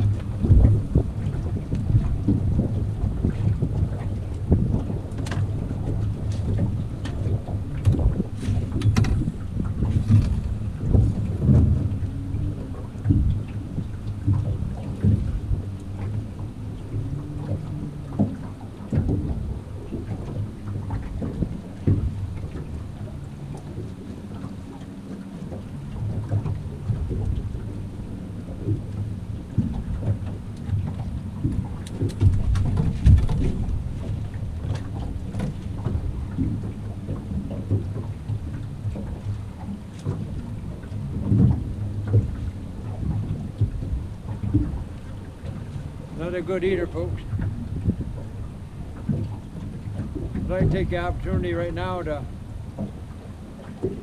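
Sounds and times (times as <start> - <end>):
water slapping boat hull: 0.0 - 54.0
wind buffeting microphone: 0.0 - 54.0.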